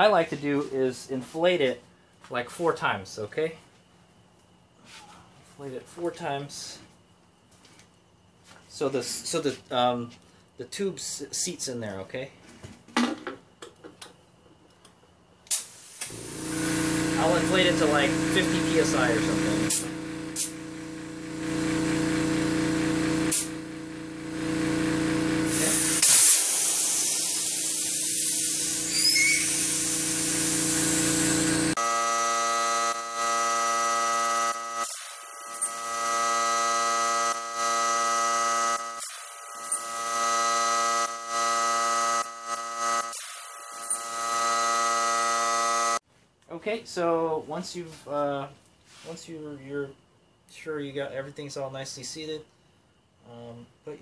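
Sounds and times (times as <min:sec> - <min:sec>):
compressed air hissing: 0:15.5 - 0:20.7, 0:23.2 - 0:23.6, 0:25.5 - 0:31.8
steady machine hum: 0:16.1 - 0:26.0, 0:29.8 - 0:46.0.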